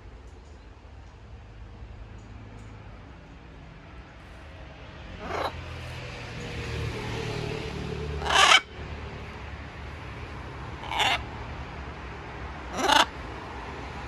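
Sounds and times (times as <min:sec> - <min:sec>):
macaw squawking: 0:05.2 - 0:05.6, 0:08.2 - 0:08.7, 0:10.8 - 0:11.2, 0:12.7 - 0:13.1.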